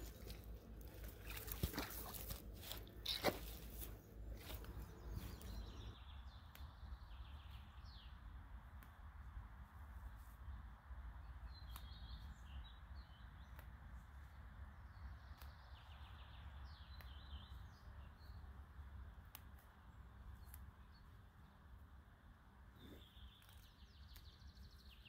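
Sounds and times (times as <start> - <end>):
small birds chirping: 0.0 - 9.1, 10.0 - 25.0
low steady rumble: 0.0 - 11.6.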